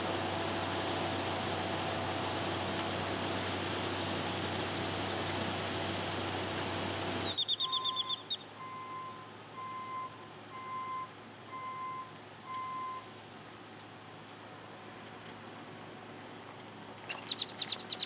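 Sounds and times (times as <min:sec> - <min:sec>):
high falling bird chirps: 0:07.2 - 0:08.6, 0:17.0 - 0:18.0
equipment warning beeper: 0:07.3 - 0:13.1.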